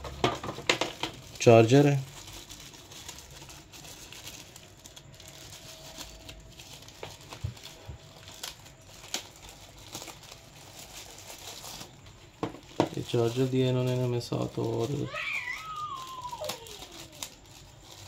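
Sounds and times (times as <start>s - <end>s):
plastic wrapping crinkling: 0.0s - 18.0s.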